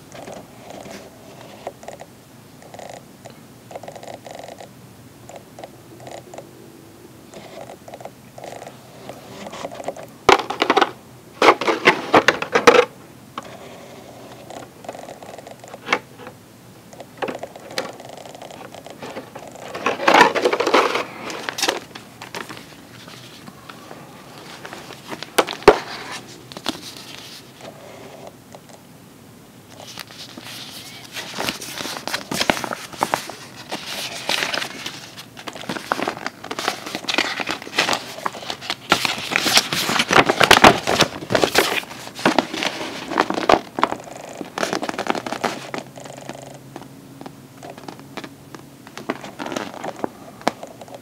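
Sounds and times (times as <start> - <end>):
plastic packaging crinkling: 17.1 - 27.7, 29.7 - 46.8, 47.6 - 51.0.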